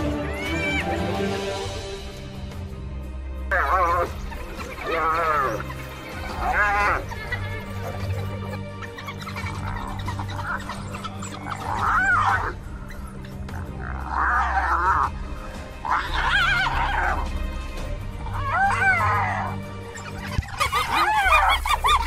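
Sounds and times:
high warbling animal cries: 3.5 - 15.2, 15.8 - 17.3, 18.3 - 22.0.

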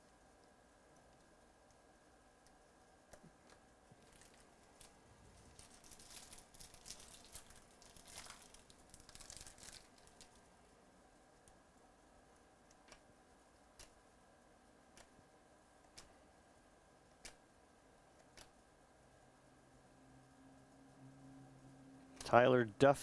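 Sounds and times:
card pack wrapper tearing: 5.4 - 10.4.

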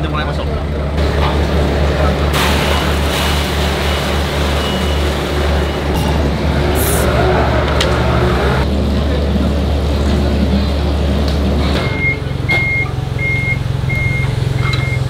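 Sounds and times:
vehicle engine rumbling: 0.0 - 15.0
reversing alarm beeps: 11.8 - 15.0.

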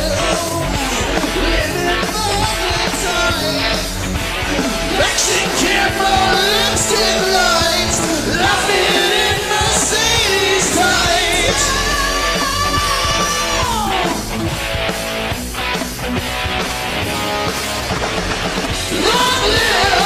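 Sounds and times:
lead singer holding long notes: 0.0 - 14.4
rock band playing: 0.0 - 20.0.

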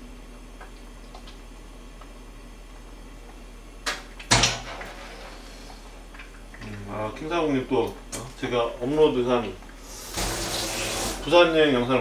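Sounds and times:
knocks in a kitchen: 4.3 - 5.0.

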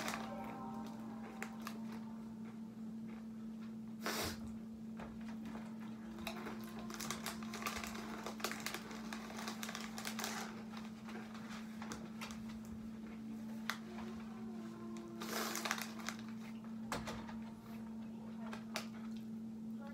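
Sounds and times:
foil snack bag crinkling: 0.0 - 2.2, 6.0 - 16.6
steady low hum: 0.0 - 19.9
tortilla chips crunching: 6.1 - 12.7, 15.2 - 16.6.

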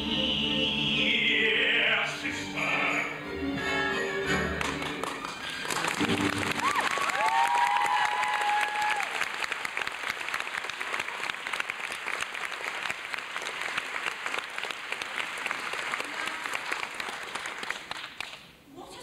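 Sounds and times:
audience applauding: 4.4 - 18.5.

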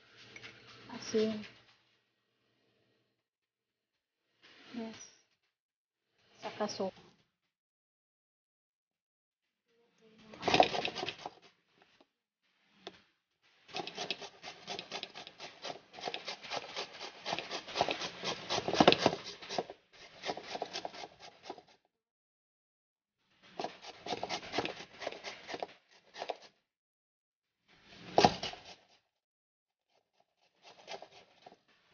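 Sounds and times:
papaya rasping on metal grater: 10.4 - 11.4, 13.7 - 21.7, 23.5 - 26.4, 30.6 - 31.6.

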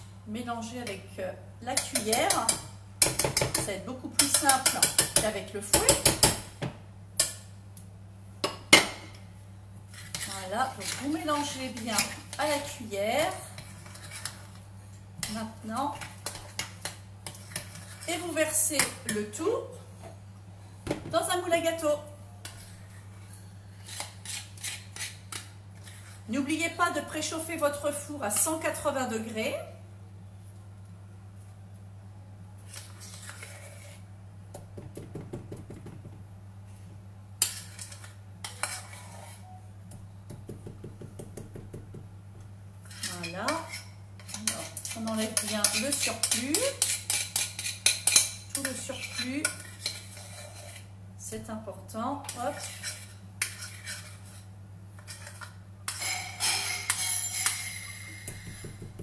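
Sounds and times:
spoon scraping cake batter: 9.9 - 19.3, 22.4 - 26.4, 32.6 - 34.1, 37.4 - 39.6, 42.8 - 51.0, 52.2 - 58.8.

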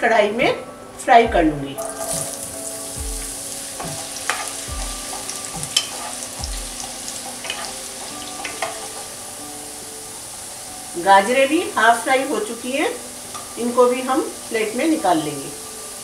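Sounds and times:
carrots sizzling in oil: 1.8 - 16.0
spatula scraping and tapping pan: 3.7 - 9.1.

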